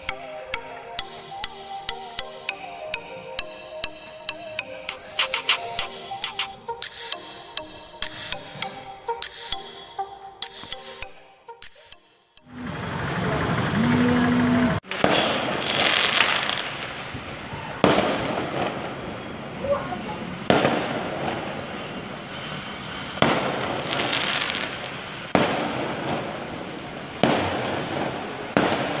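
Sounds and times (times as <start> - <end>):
fireworks hissing and crackling: 4.9 - 7.2, 14.9 - 29.0
fireworks bangs: 12.5 - 29.0.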